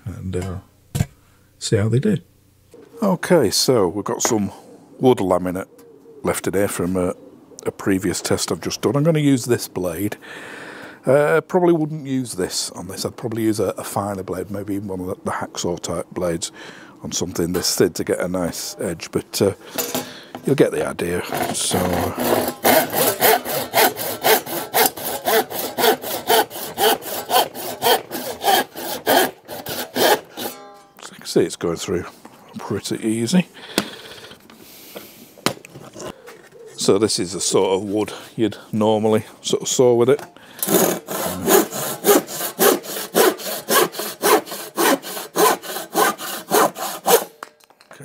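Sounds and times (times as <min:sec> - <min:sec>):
hand saw cutting wood board: 0:21.2 - 0:30.6, 0:40.6 - 0:47.4.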